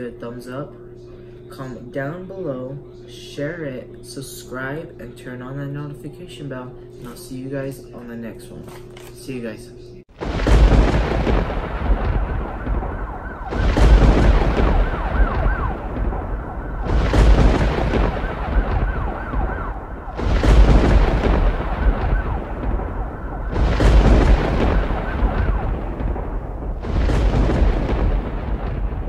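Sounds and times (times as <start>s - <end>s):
deep boom with noise rush: 10.1s - 29.0s
rumbling bass: 10.2s - 29.0s.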